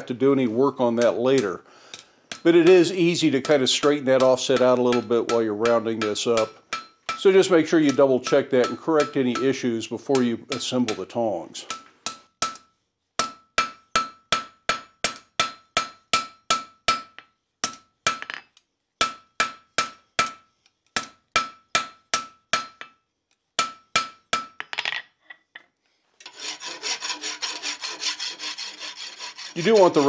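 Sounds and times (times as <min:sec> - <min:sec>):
hammer ringing on anvil: 0:02.3 - 0:09.6
rasp filing steel: 0:26.2 - 0:30.0.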